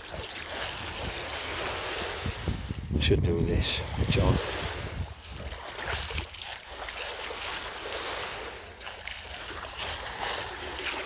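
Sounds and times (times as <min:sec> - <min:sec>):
wind rumbling on microphone: 0:00.0 - 0:08.8
small waves lapping on shore: 0:00.0 - 0:11.0.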